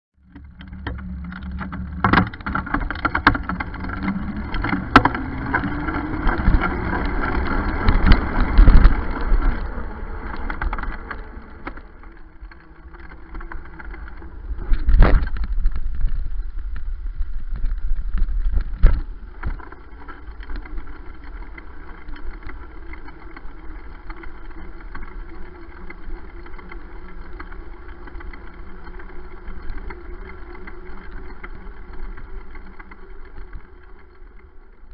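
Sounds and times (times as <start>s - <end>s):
bicycle road rumble: 0.1s - 34.9s
bike jolting over bumps: 0.2s - 34.9s
wind noise: 0.5s - 23.0s.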